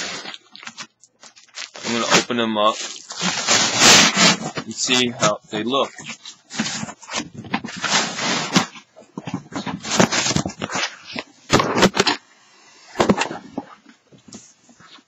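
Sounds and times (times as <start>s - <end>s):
balloons rustling and crinkling: 0.0s - 12.2s.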